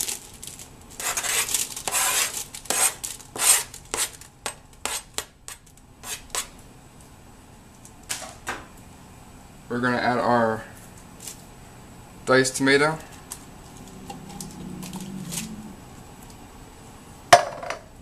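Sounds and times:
knife scraping cutting board: 0:01.0 - 0:04.2, 0:04.8 - 0:06.6.

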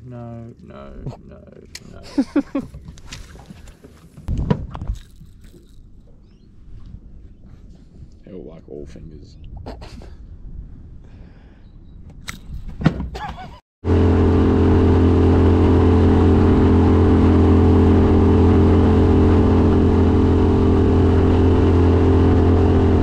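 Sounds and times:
outboard motor running: 0:13.8 - 0:23.0.

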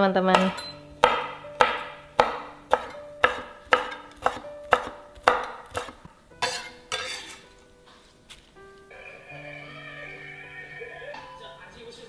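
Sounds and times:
knife chopping on wooden board: 0:00.3 - 0:07.3.

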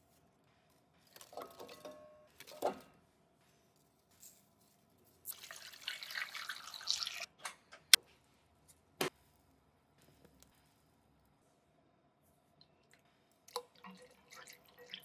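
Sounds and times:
liquid pouring into a pot: 0:05.3 - 0:07.3, 0:13.5 - 0:15.0.

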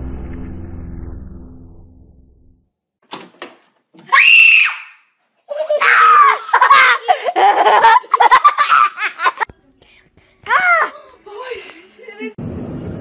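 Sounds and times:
laughter: 0:05.5 - 0:09.5
person screaming and yelling: 0:05.6 - 0:07.0.

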